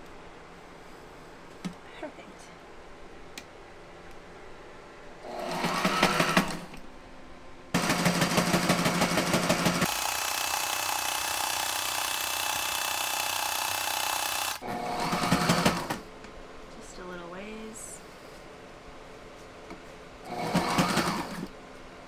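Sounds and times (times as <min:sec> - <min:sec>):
sewing machine stitching: 0:05.2 - 0:06.8, 0:07.8 - 0:16.0, 0:20.3 - 0:21.5.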